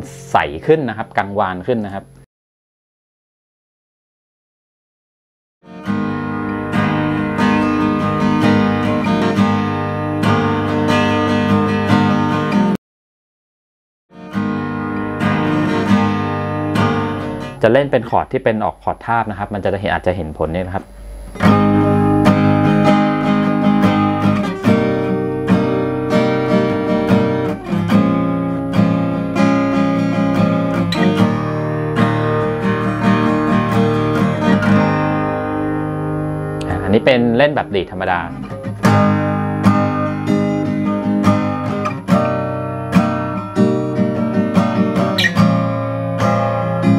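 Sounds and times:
acoustic guitar strummed chords: 0:05.7 - 0:12.8, 0:14.1 - 0:17.9, 0:20.8 - 0:46.9.

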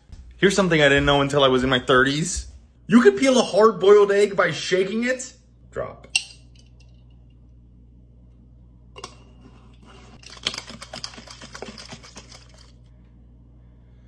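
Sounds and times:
egg rattling in a glass jar: 0:10.2 - 0:12.9.

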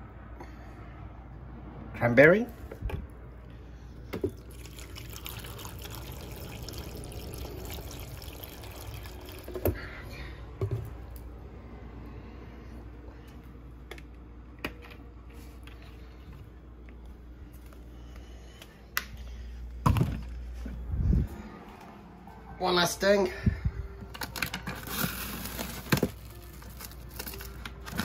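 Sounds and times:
juice pouring into blender jar: 0:04.2 - 0:09.8.

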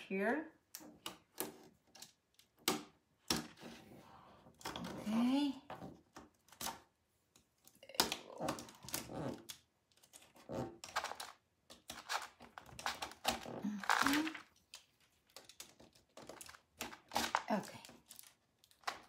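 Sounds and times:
plastic sheet rustling and scratching: 0:08.5 - 0:19.0.

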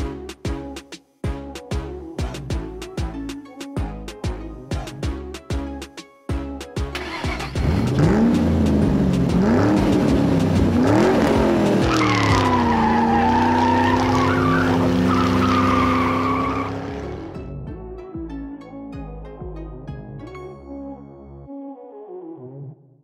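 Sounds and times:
music: 0:00.0 - 0:23.0
race car engine revving: 0:07.0 - 0:17.4
tyres squealing: 0:11.8 - 0:17.3.

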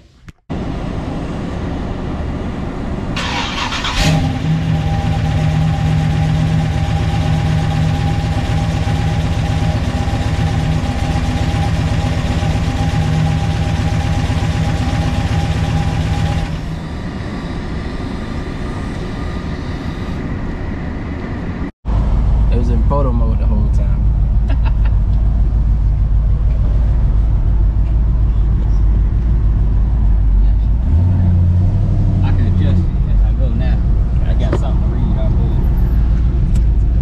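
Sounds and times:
car engine cranking and idling: 0:03.2 - 0:17.4, 0:21.9 - 0:37.0.

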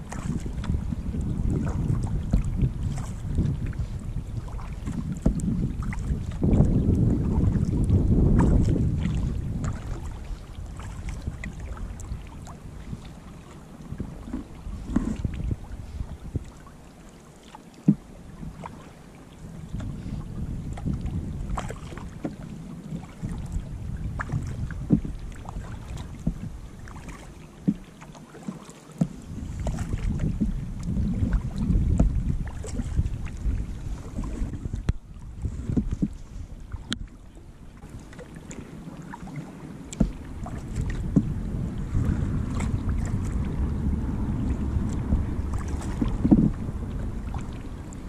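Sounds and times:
wind rumble on microphone: 0:00.0 - 0:17.1, 0:17.8 - 0:27.9, 0:29.0 - 0:48.0
water splashing against kayak hull: 0:00.0 - 0:48.0
sharp knocks on hull: 0:04.8 - 0:05.4, 0:17.8 - 0:18.1, 0:24.2 - 0:25.2, 0:26.2 - 0:26.5, 0:27.6 - 0:27.8, 0:35.6 - 0:36.2, 0:39.9 - 0:41.3, 0:45.5 - 0:46.6.

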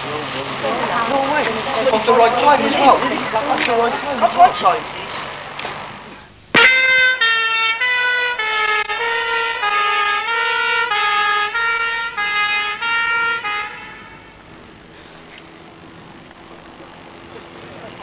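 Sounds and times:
fire engine two-tone siren: 0:06.6 - 0:15.2.

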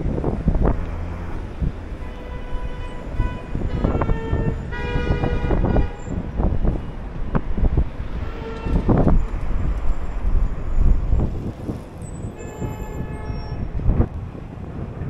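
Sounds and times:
street traffic: 0:00.0 - 0:15.0
wind gusts buffeting microphone: 0:00.0 - 0:15.0
vehicle horn: 0:01.9 - 0:07.0, 0:08.1 - 0:09.2, 0:12.4 - 0:13.7.

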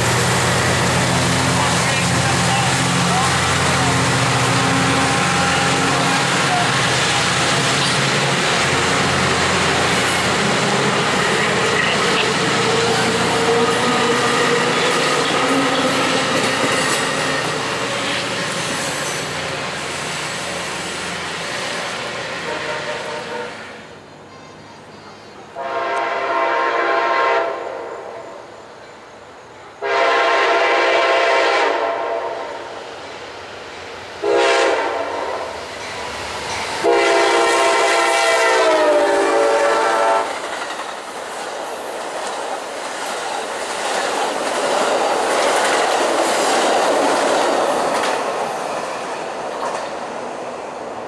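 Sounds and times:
train passing at speed: 0:00.0 - 0:51.0
locomotive horn blasts: 0:04.4 - 0:06.5, 0:22.4 - 0:27.9, 0:29.8 - 0:32.4, 0:34.2 - 0:35.4, 0:36.8 - 0:40.3.

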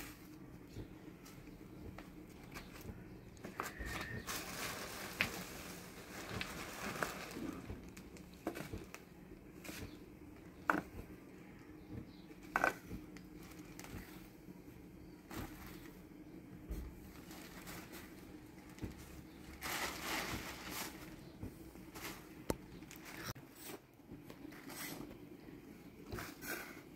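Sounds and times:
plastic sheet rustling: 0:02.2 - 0:10.0, 0:12.9 - 0:14.4, 0:15.2 - 0:16.1, 0:16.7 - 0:23.8.

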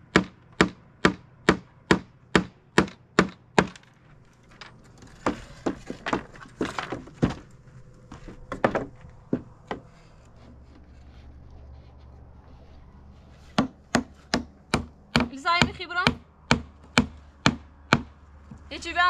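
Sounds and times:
hammer driving nail into wood: 0:00.1 - 0:03.9, 0:13.6 - 0:18.2
wood knocking on wood: 0:05.0 - 0:10.8, 0:13.5 - 0:18.7.

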